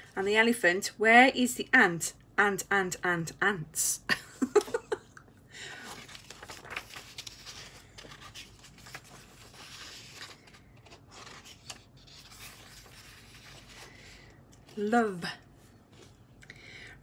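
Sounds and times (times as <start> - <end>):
paper pages rustling: 5.7 - 14.8.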